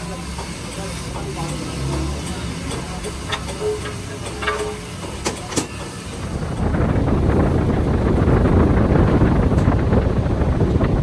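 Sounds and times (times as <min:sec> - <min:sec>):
wind buffeting microphone: 0:06.1 - 0:11.0.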